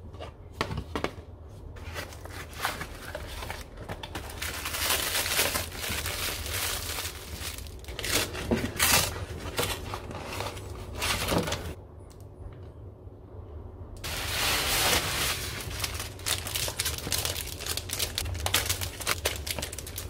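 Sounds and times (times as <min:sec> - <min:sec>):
steady low hum: 0:00.0 - 0:20.0
packaging crinkling and rustling: 0:01.8 - 0:11.8, 0:14.0 - 0:20.0.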